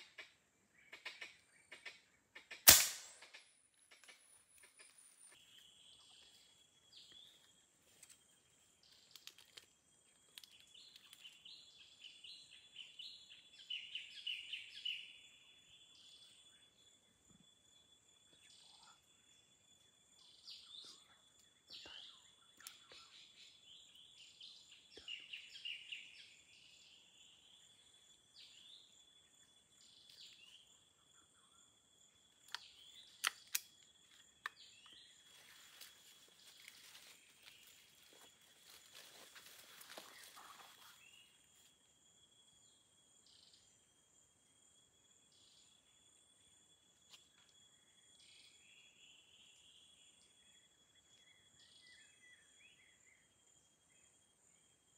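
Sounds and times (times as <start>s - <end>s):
sharp clicks: 1.0s - 4.8s, 32.4s - 34.6s
bird chirps: 10.1s - 17.5s, 18.2s - 41.5s, 47.1s - 54.8s.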